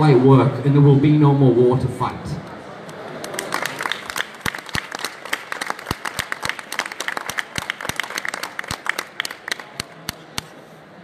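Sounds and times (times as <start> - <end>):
audience applauding: 3.1 - 10.5.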